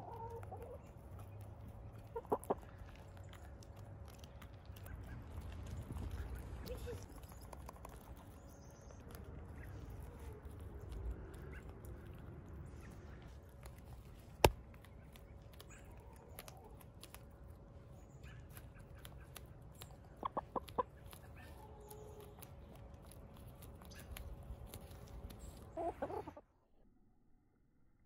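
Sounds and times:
hens pecking and scratching: 0.0s - 26.4s.

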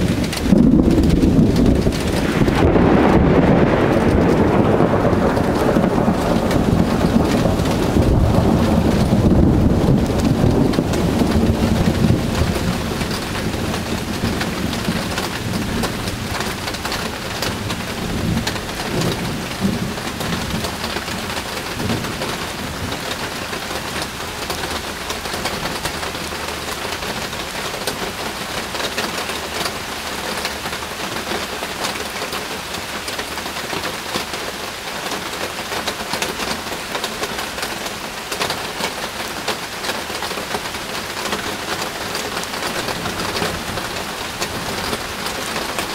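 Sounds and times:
low thunder rumble: 0.0s - 29.0s, 40.5s - 45.9s
heavy rain falling: 0.0s - 45.9s.

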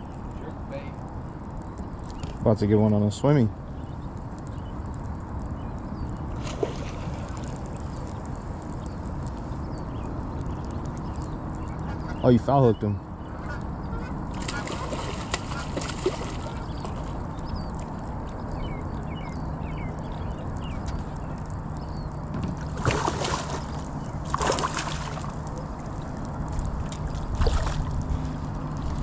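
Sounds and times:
steady low hum: 0.0s - 29.0s
fish splashing in water: 6.4s - 8.0s, 14.3s - 17.2s, 22.6s - 28.2s.

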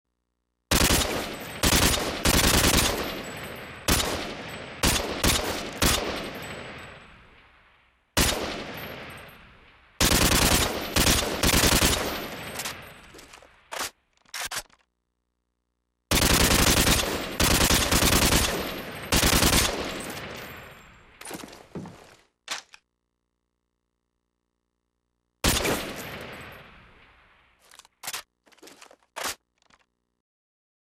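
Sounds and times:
automatic rifle bursts: 10.0s - 14.8s.

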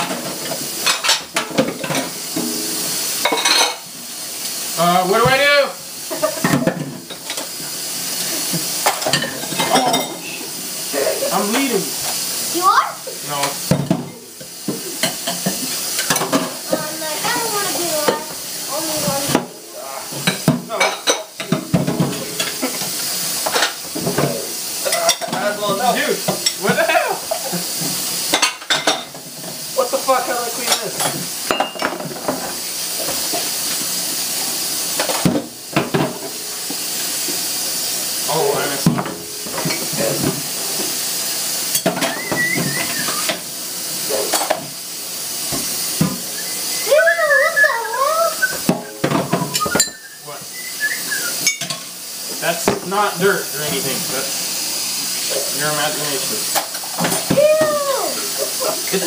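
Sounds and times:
dishes clinking: 0.0s - 3.9s, 6.1s - 7.5s, 8.8s - 10.3s, 13.7s - 16.6s, 20.1s - 29.2s, 30.6s - 32.5s, 38.8s - 40.4s, 41.7s - 43.4s, 44.3s - 44.7s, 48.5s - 50.1s, 51.4s - 51.9s
tap running into a sink: 4.4s - 5.5s, 13.3s - 29.6s, 30.2s - 37.5s, 38.2s - 41.0s, 41.7s - 44.8s, 45.4s - 46.5s, 47.7s - 50.5s, 51.4s - 54.3s, 55.2s - 58.1s.

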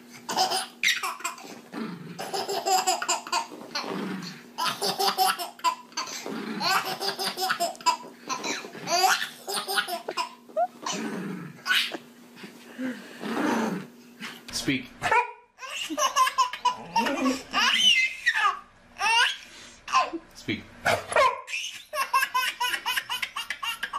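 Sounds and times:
baby laughing: 0.3s - 1.5s, 2.2s - 3.9s, 4.6s - 11.0s, 11.6s - 12.1s, 15.1s - 20.2s, 21.5s - 23.9s.

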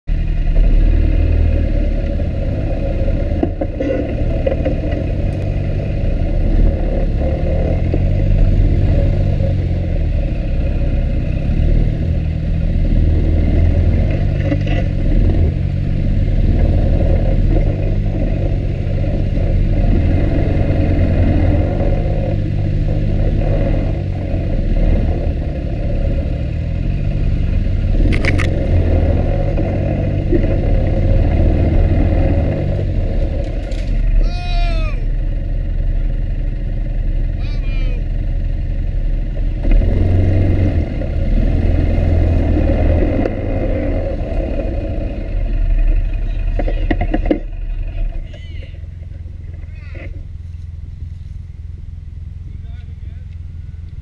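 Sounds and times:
off-road vehicle engine: 0.0s - 54.0s
rattles and scrapes: 2.1s - 5.9s, 13.0s - 34.2s, 39.3s - 51.6s.

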